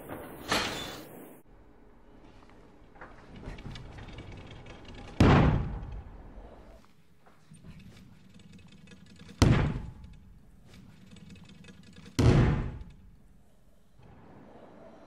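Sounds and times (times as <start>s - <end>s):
heavy thuds on landing mats: 9.4s - 10.1s, 12.2s - 13.1s.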